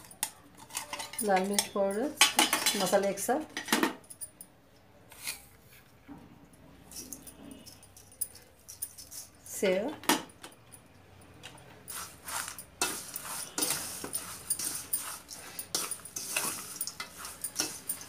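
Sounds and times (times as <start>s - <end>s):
spoon scraping steel bowl: 0.0s - 3.7s, 6.9s - 9.4s, 11.8s - 18.0s
crisp mixture rustling: 11.8s - 18.0s.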